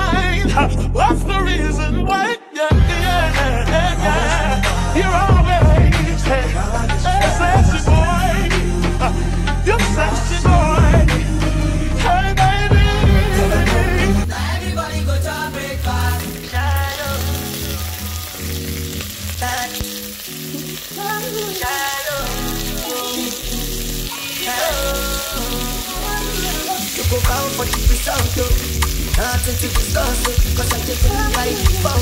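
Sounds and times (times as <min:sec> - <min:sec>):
background music with bass line: 0:00.0 - 0:32.0
food sizzling in a frying pan: 0:13.2 - 0:32.0.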